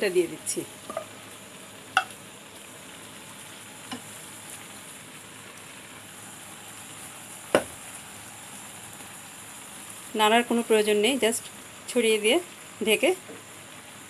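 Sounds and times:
rice bubbling in pan: 0.0s - 14.0s
wooden spatula knocking pan: 7.6s - 7.8s.

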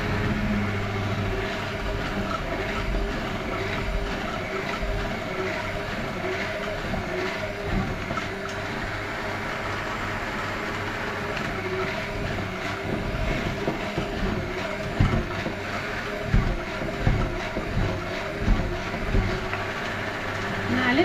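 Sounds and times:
electric hand mixer running: 0.0s - 21.0s
dull knocks: 12.2s - 19.6s.

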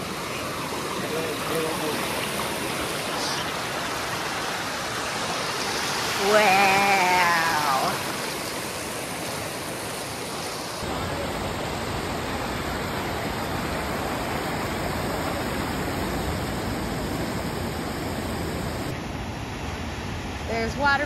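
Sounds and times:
creek water rushing over rocks: 0.0s - 18.9s.

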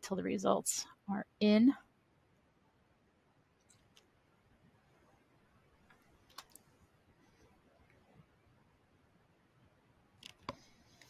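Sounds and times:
computer mouse clicks: 5.9s - 6.7s, 10.2s - 11.0s.

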